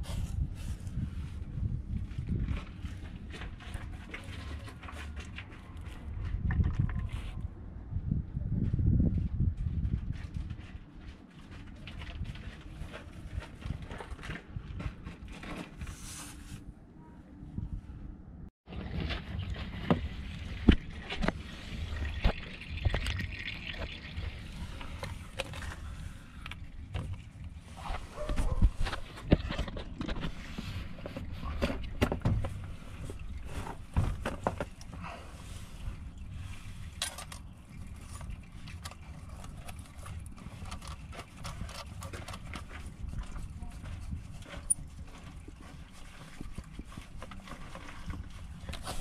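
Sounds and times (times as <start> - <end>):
liquid trickling: 19.2 - 27.8.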